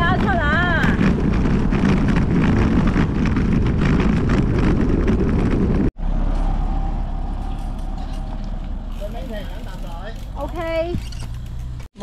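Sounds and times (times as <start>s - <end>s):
wind rushing on microphone: 0.0s - 6.0s
road noise: 0.0s - 12.0s.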